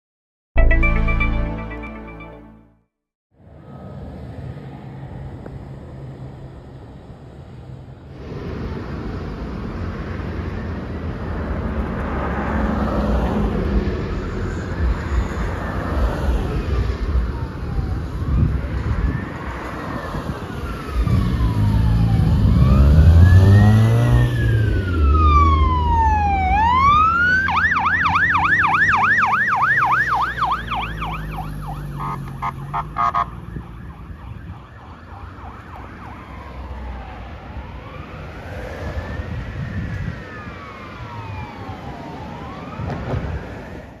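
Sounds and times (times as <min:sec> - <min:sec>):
electronic sirens wailing: 0:14.5 - 0:43.5
siren yelp: 0:14.6 - 0:43.6.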